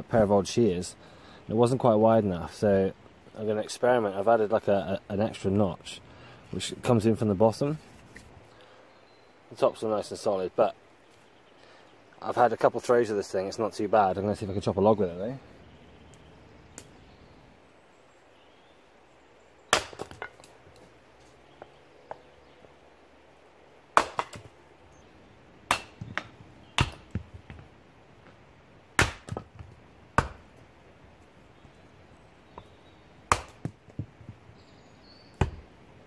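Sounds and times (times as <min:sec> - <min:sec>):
axe chopping log: 0:19.7 - 0:20.5, 0:23.9 - 0:24.5, 0:25.6 - 0:27.6, 0:29.0 - 0:30.5, 0:33.2 - 0:34.4, 0:35.4 - 0:35.7.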